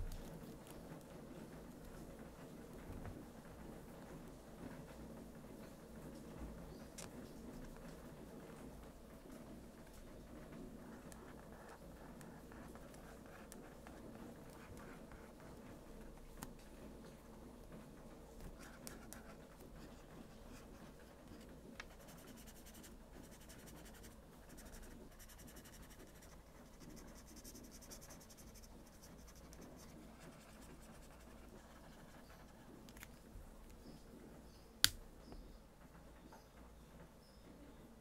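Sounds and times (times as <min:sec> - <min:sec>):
marker scratching on paper: 0:18.5 - 0:32.7.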